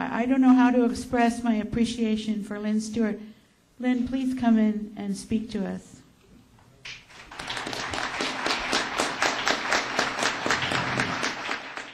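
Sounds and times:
audience applauding: 0:06.9 - 0:11.9.

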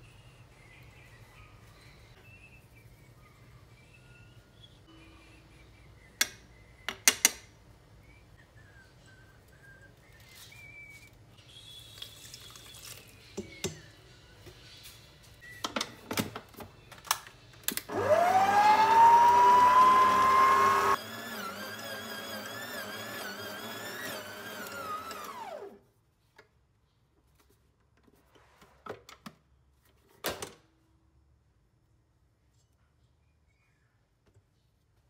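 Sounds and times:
stand mixer motor running: 0:17.9 - 0:25.7.

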